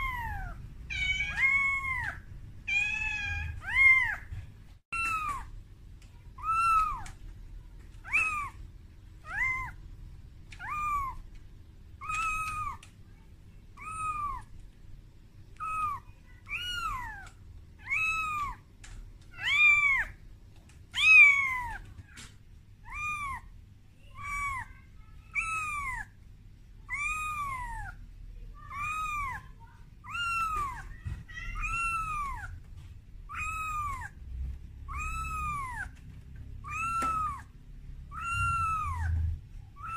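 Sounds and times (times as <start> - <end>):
kitten meowing: 0.0 - 4.2, 4.9 - 5.5, 6.4 - 7.2, 8.0 - 8.6, 9.2 - 9.8, 10.5 - 11.2, 12.0 - 12.9, 13.8 - 14.5, 15.6 - 18.6, 19.4 - 20.2, 20.9 - 22.2, 22.8 - 23.4, 24.2 - 26.1, 26.9 - 28.0, 28.7 - 32.6, 33.3 - 34.2, 34.8 - 36.0, 36.6 - 37.5, 38.1 - 39.9.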